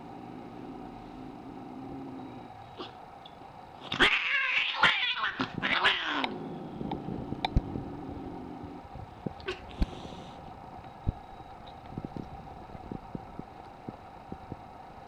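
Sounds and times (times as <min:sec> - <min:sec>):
cat yowling and hissing: 0:03.9 - 0:06.3.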